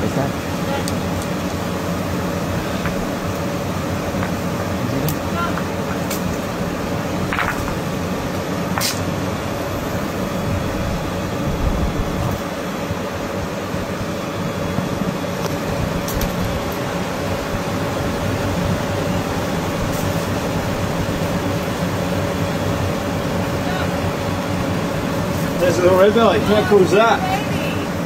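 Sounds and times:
mechanical hum and hiss: 0:00.0 - 0:28.0
rocks knocking together: 0:07.3 - 0:07.8.

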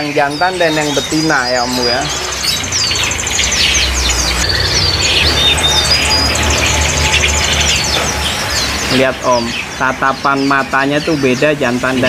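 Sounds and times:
songbirds chirping and trilling: 0:00.0 - 0:12.0
steady low rumble: 0:01.7 - 0:09.0.

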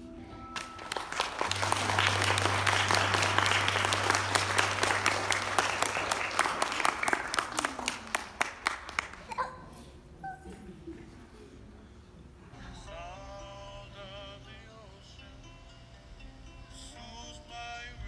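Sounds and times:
low steady hum: 0:00.0 - 0:08.6
audience applauding: 0:00.6 - 0:09.4.

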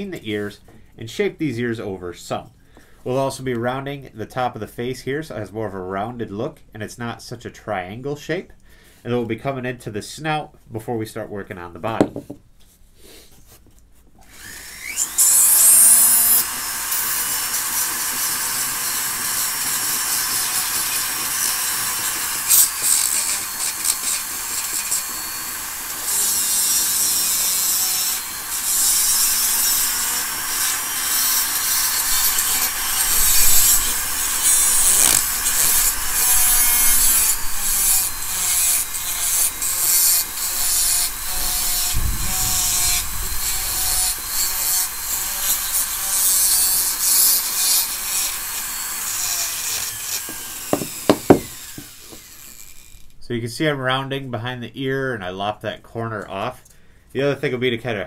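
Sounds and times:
rotary carver grinding wood: 0:14.2 - 0:53.2.

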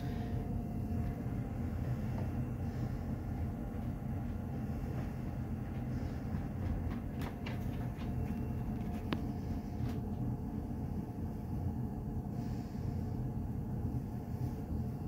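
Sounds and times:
gas furnace rumbling: 0:00.0 - 0:15.0.

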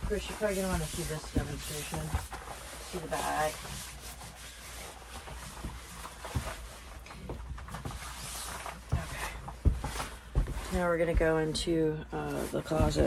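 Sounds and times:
rubber boots thumping on floor: 0:08.9 - 0:11.8, 0:12.7 - 0:13.0.

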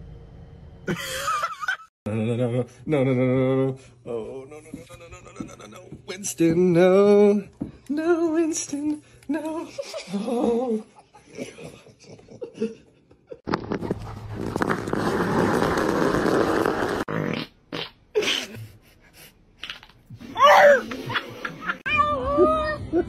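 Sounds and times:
rock scraping along asphalt: 0:13.6 - 0:17.1.

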